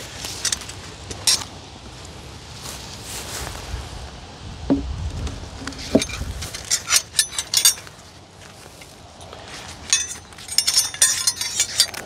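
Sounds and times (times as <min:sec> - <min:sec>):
wind rumble on microphone: 0:02.4 - 0:07.0
metal tool scraping wooden box: 0:10.0 - 0:12.0.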